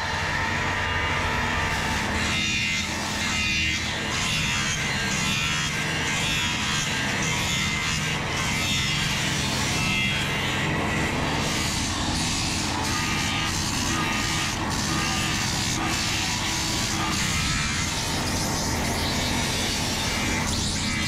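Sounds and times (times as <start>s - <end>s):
disc sander humming: 4.7s - 21.0s.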